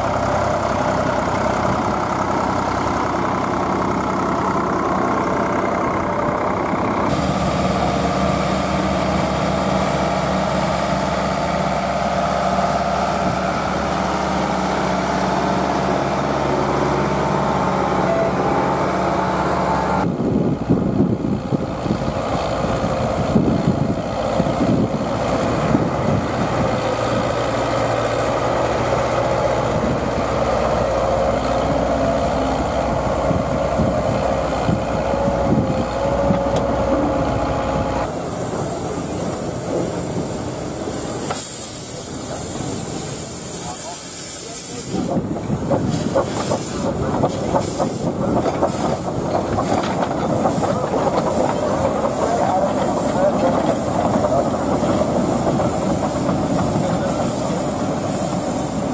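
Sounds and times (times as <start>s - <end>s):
tractor engine running: 0.0s - 58.9s
wind buffeting on microphone: 20.0s - 27.3s, 32.9s - 37.9s, 44.9s - 58.9s.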